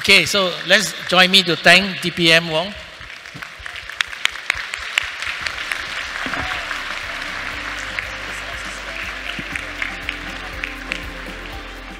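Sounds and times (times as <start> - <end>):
audience applauding: 0.0 - 2.0, 2.8 - 11.9
background music: 5.2 - 11.9.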